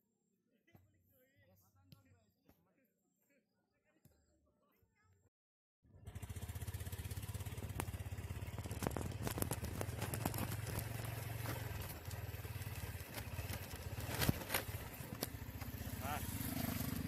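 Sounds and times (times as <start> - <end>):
small engine running: 5.9 - 17.0.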